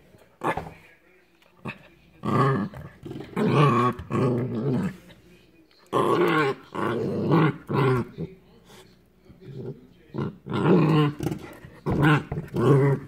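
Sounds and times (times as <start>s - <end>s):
puppy growling: 1.6s - 5.2s, 5.9s - 8.3s, 9.4s - 13.0s.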